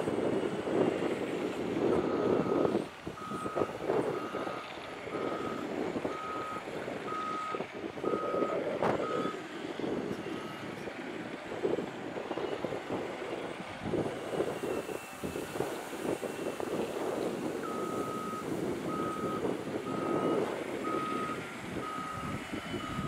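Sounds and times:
diesel engine running: 0:00.0 - 0:23.0
reversing alarm beeping: 0:01.9 - 0:09.4, 0:16.1 - 0:17.0, 0:17.6 - 0:23.0.

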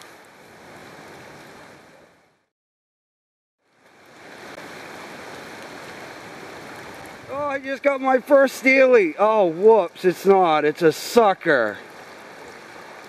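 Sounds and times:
river water rushing: 0:03.6 - 0:13.0.

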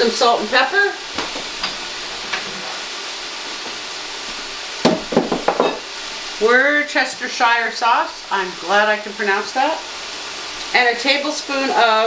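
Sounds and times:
meat sizzling in oil: 0:00.0 - 0:12.0
sharp knocks: 0:04.8 - 0:05.8.

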